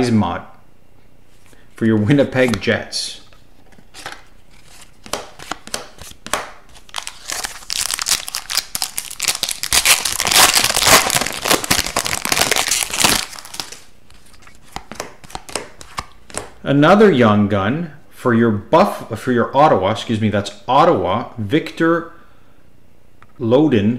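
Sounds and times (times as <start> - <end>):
foil wrapper crinkling: 4.6 - 14.5.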